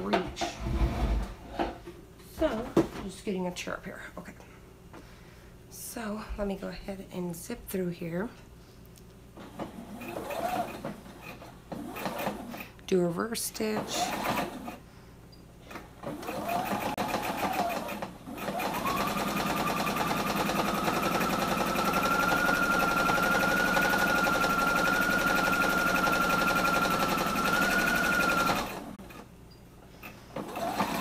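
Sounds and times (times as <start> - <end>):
electric sewing machine stitching: 9.5 - 12.7, 13.8 - 14.8, 16.0 - 29.2, 30.4 - 31.0.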